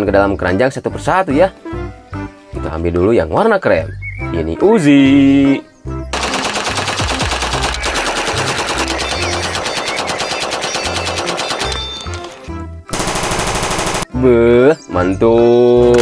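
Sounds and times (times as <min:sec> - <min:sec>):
music: 0:00.0 - 0:16.0
submachine gun automatic fire: 0:06.2 - 0:12.0, 0:12.9 - 0:14.1
toy gun electronic rattling: 0:06.2 - 0:14.1.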